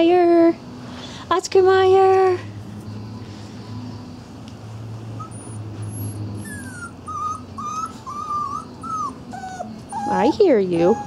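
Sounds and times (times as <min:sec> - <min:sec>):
small dog whining: 0:05.2 - 0:11.0.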